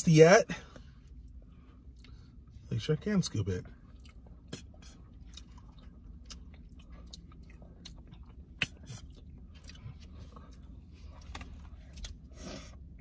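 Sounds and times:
low steady hum: 0.0 - 13.0
lip smacks and mouth clicks: 3.9 - 12.3.

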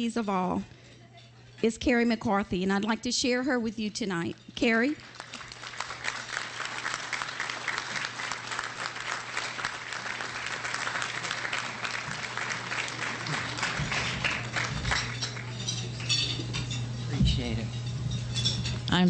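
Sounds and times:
audience applauding: 5.0 - 16.3.

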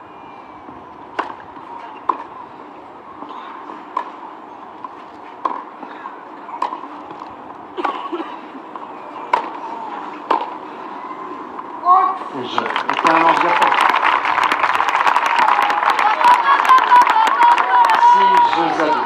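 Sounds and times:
tennis racket hitting ball: 1.1 - 1.4, 2.0 - 2.3, 3.9 - 4.2, 4.8 - 5.7, 6.5 - 8.0, 9.2 - 9.6, 10.2 - 10.6.

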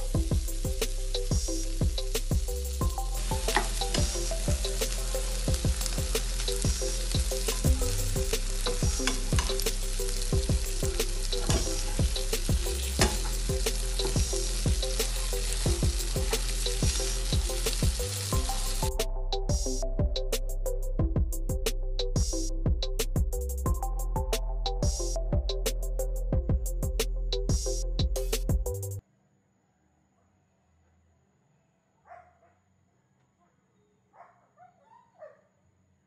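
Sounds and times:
shrimp sizzling in frying pan: 0.0 - 19.0.

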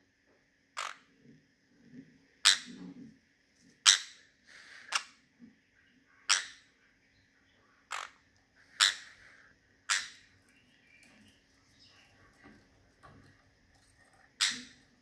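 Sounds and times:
parrot high-pitched calls: 0.8 - 1.1, 2.4 - 2.7, 3.8 - 4.2, 6.3 - 6.7, 7.9 - 9.2, 9.9 - 10.3, 14.4 - 14.9.

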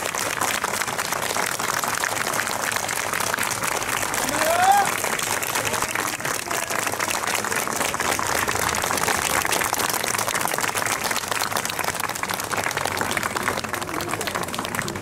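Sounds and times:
crowd applauding: 0.0 - 15.0.

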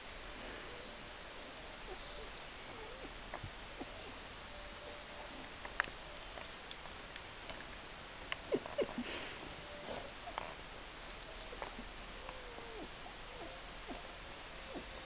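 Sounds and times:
puppies squeaking and whimpering: 11.3 - 14.1, 14.7 - 15.0.

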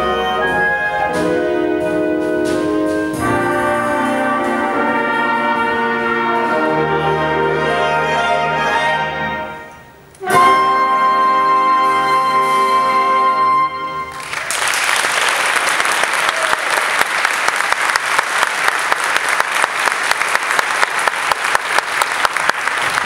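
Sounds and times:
big band holding a chord: 0.0 - 14.5
audience applause: 14.1 - 23.0.

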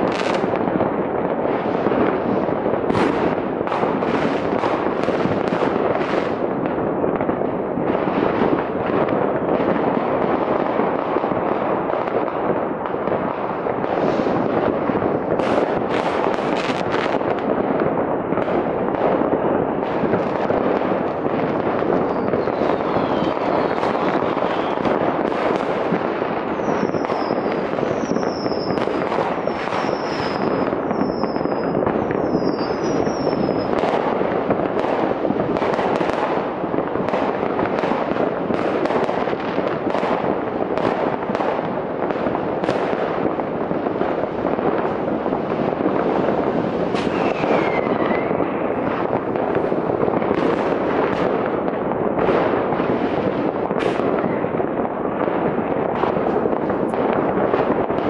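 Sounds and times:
fireworks bangs and crackle: 0.0 - 58.0
falling firework whistles: 22.0 - 24.9, 26.4 - 33.8, 46.9 - 48.6.

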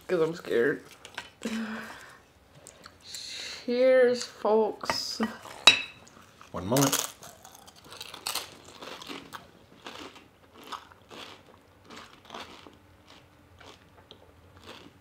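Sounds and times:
chips being chewed: 6.1 - 15.0.

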